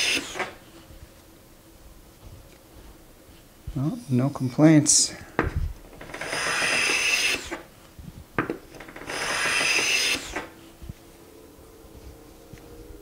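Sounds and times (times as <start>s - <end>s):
hand plane shaving wood: 0.0s - 0.6s, 6.1s - 7.7s, 9.0s - 10.6s.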